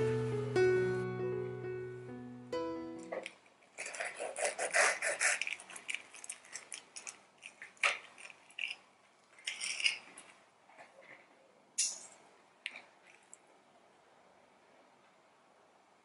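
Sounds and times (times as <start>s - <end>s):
guitar tune: 0.0s - 3.3s
knife crunching through crispy crust: 3.8s - 8.8s.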